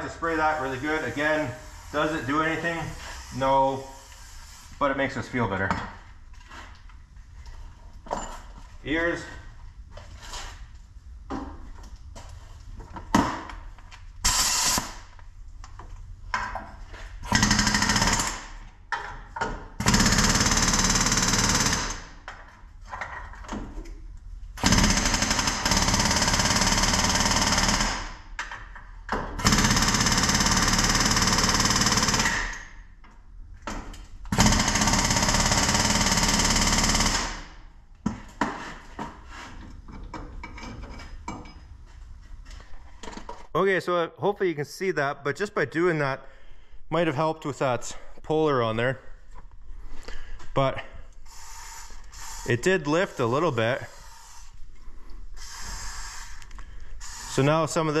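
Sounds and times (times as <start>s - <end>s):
pneumatic air hammer rattling: 14.2s - 15.0s, 55.4s - 56.4s.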